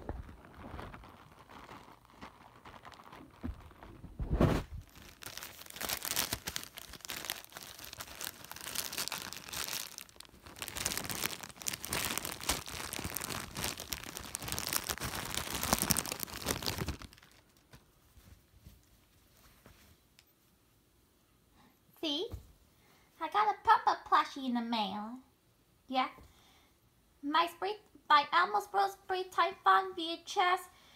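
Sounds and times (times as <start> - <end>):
packaging tearing: 0.0 - 17.6
packaging crinkling and rustling: 0.0 - 18.9.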